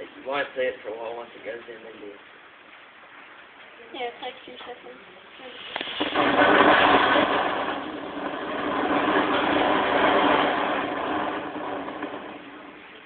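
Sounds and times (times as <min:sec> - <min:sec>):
sparklers crackling hiss: 0:03.8 - 0:13.0.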